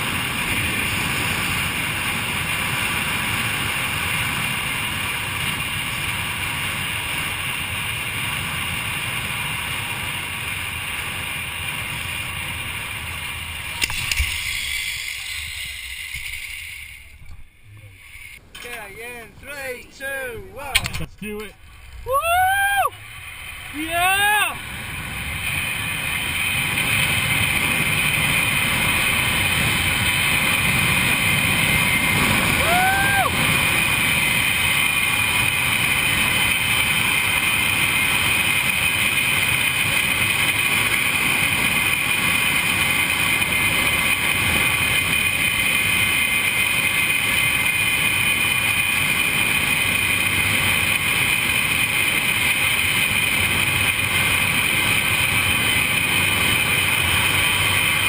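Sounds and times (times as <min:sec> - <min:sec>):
zip line trolley whirring: 0:00.0 - 0:58.0
person whooping: 0:22.0 - 0:23.0, 0:23.7 - 0:24.6, 0:32.5 - 0:33.4.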